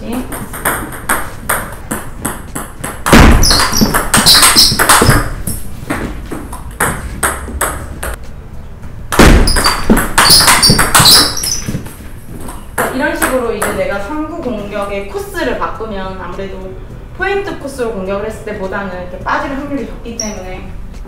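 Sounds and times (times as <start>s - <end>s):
table tennis ball clicking: 0.3s - 5.4s, 9.5s - 11.7s.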